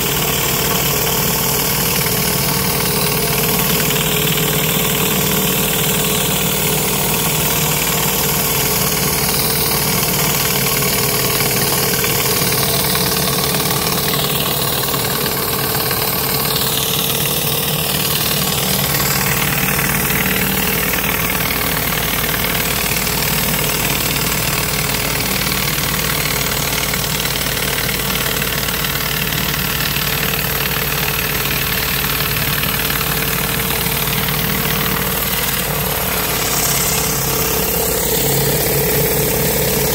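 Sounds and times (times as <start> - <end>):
pressure washer engine running: 0.0 - 39.9
high-pressure water jets hissing: 32.8 - 39.9.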